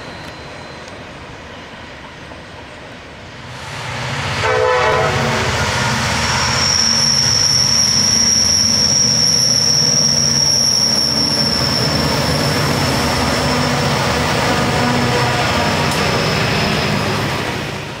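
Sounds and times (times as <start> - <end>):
diesel locomotive engine rumbling: 0.0 - 18.0
train wheels rolling on rails: 0.0 - 18.0
high-pitched wheel squeal: 6.3 - 14.1.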